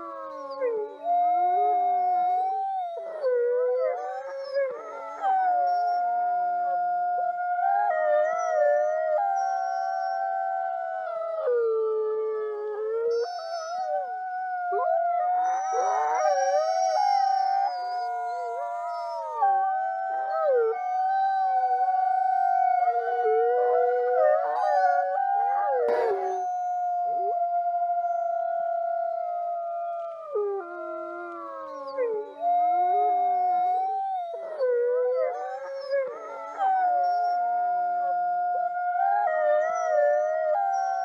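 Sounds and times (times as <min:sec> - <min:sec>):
wolves howling: 0:00.0 - 0:41.0.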